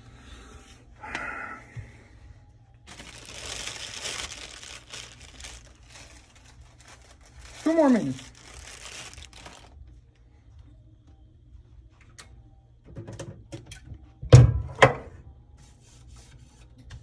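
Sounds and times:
paper wipes rustling: 2.9s - 9.8s.

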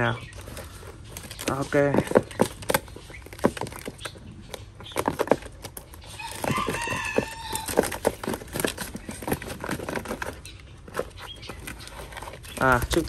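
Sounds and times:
knocks and rustles: 0.0s - 13.0s
rooster crowing: 6.2s - 8.1s.

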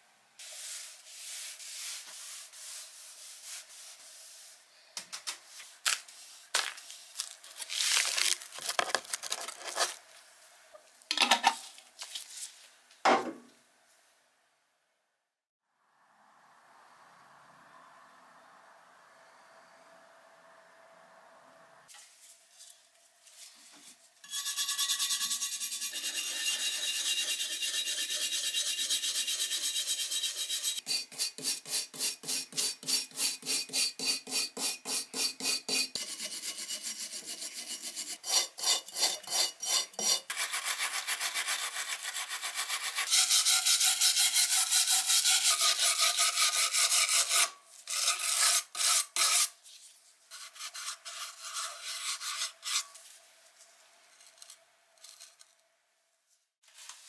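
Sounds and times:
wire brush scrubbing rusty metal: 24.2s - 53.0s.

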